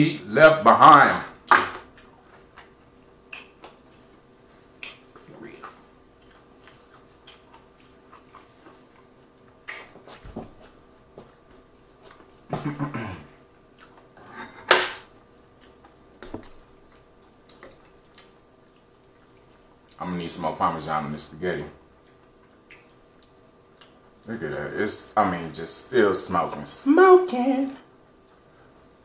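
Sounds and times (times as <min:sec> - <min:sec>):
crunchy chewing: 0:01.9 - 0:10.2, 0:13.7 - 0:14.2, 0:15.4 - 0:20.0
wet mouth clicks: 0:03.3 - 0:03.9, 0:04.8 - 0:05.3, 0:06.2 - 0:08.5, 0:09.6 - 0:10.0, 0:22.5 - 0:24.2.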